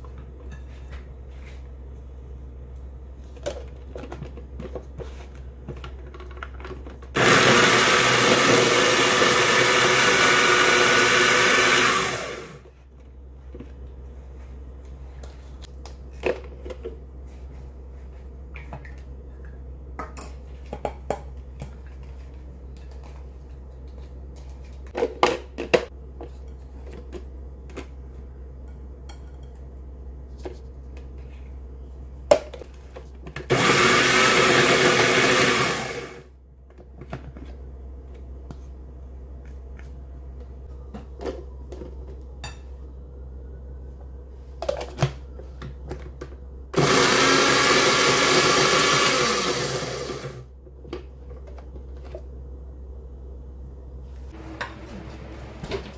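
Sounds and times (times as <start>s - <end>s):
low steady hum: 0.0s - 7.2s, 12.6s - 33.4s, 36.3s - 46.8s, 50.4s - 55.9s
food processor motor running: 7.2s - 12.6s, 33.5s - 36.3s, 46.8s - 50.5s.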